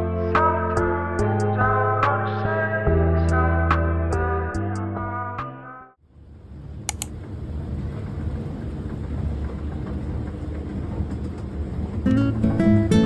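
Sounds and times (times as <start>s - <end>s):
quick clicks: 6.9s - 7.1s.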